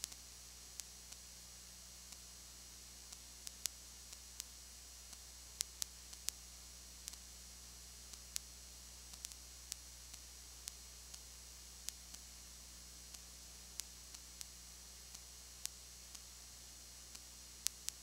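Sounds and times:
low electrical hum: 0.0 - 18.0
steady hiss: 0.0 - 18.0.

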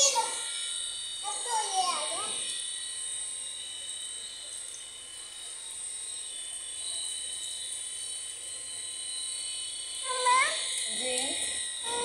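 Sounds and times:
water running from hose onto tiles: 10.0 - 12.0.

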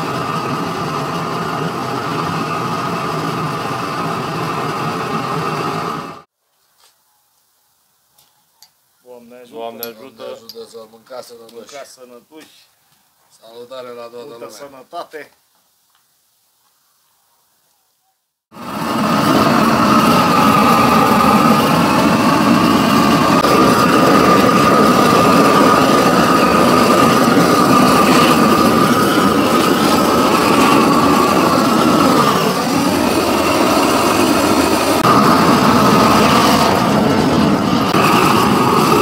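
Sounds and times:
loud engine-like running sound: 0.0 - 6.3, 18.5 - 39.0.

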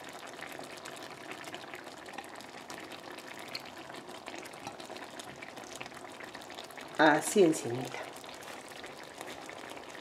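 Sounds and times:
stew bubbling in a pan: 0.0 - 10.0.

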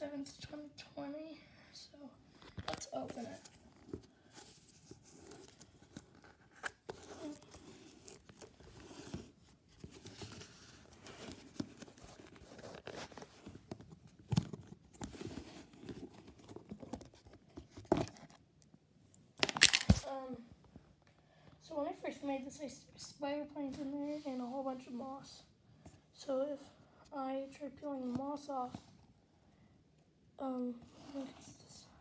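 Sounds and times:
plastic lid crinkling and clicking: 19.4 - 20.0.

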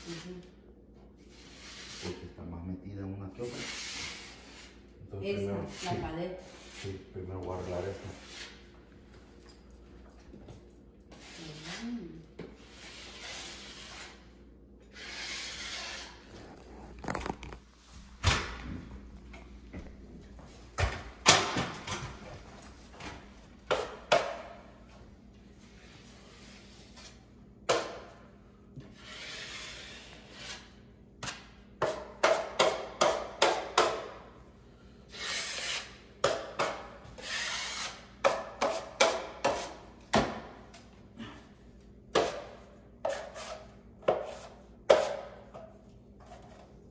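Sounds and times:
drywall knife scraping wall: 1.3 - 2.2, 3.4 - 4.8, 12.6 - 14.3, 14.9 - 17.4, 28.8 - 34.0, 35.1 - 39.9, 42.1 - 46.7.

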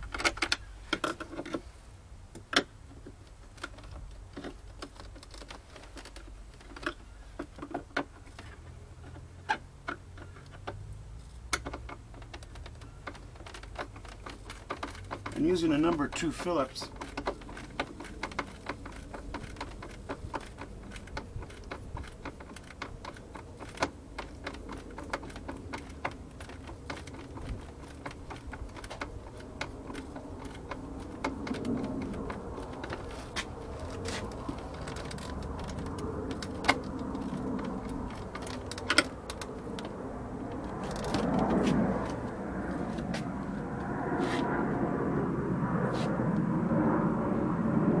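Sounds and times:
screwdriver clicks and ticks: 11.5 - 43.1.

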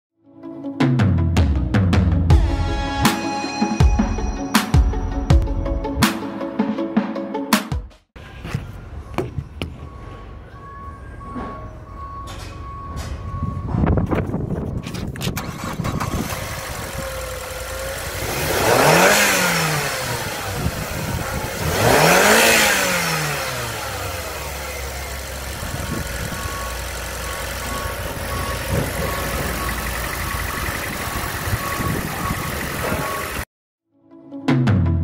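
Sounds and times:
electronic warning beep: 9.0 - 15.0, 25.8 - 33.4
car engine starting and revving: 15.2 - 33.5.

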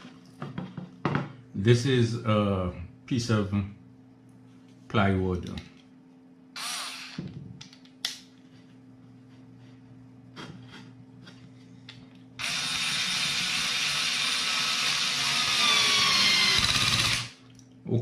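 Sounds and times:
cordless screwdriver motor whining: 6.6 - 7.2, 12.4 - 17.4.

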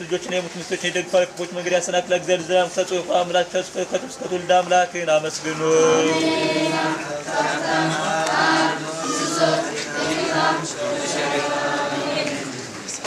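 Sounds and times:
congregation chanting a prayer: 5.5 - 12.9.

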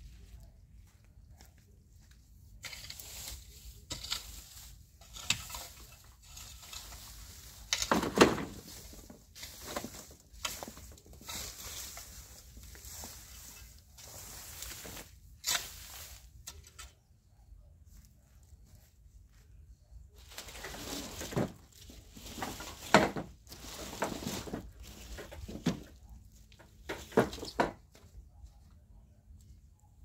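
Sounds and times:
hoe striking dry soil: 2.6 - 17.0.

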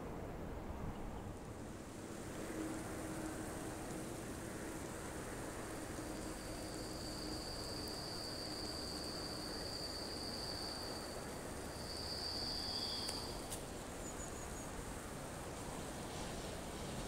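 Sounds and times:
faint outdoor hiss: 0.0 - 17.0
insect trilling: 6.4 - 13.4.

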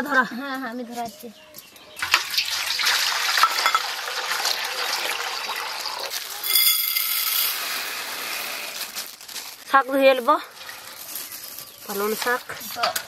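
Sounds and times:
water pouring into steel bowl: 2.0 - 8.5
lentils rattling into steel bowl: 6.1 - 9.6.

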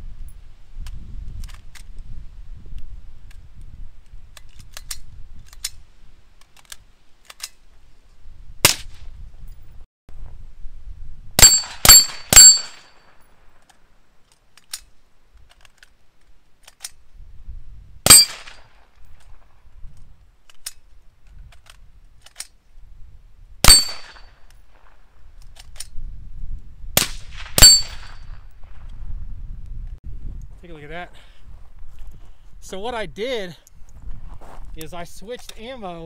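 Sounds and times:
suppressed rifle gunshots: 23.6 - 24.2, 27.0 - 28.2.

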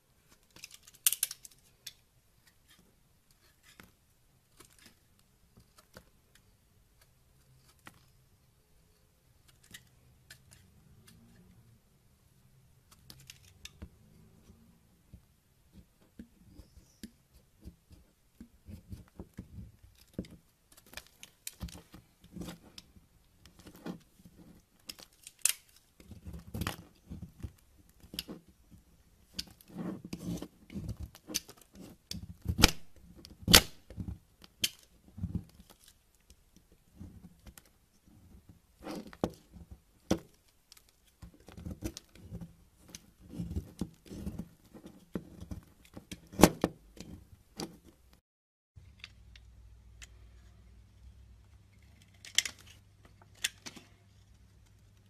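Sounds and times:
knife scraping soap: 29.4 - 32.7, 41.4 - 47.3.

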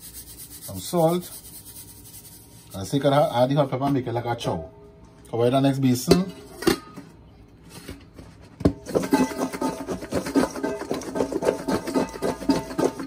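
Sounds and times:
food rattling in steel bowls: 8.8 - 13.0.

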